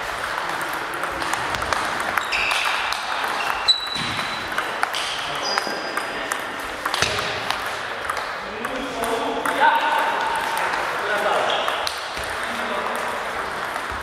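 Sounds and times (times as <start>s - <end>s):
sports hall hubbub: 0.0s - 14.0s
table tennis balls clicking: 0.0s - 14.0s
short high squeaks: 3.4s - 4.4s.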